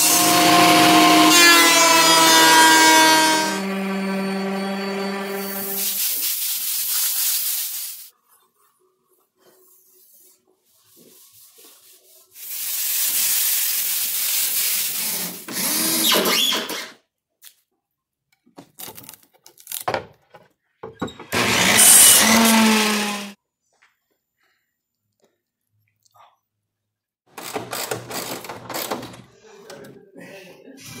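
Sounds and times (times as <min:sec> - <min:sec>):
power tool humming: 0:00.0 - 0:05.9, 0:21.3 - 0:23.4
air spray gun hissing: 0:05.5 - 0:08.1, 0:12.4 - 0:15.0.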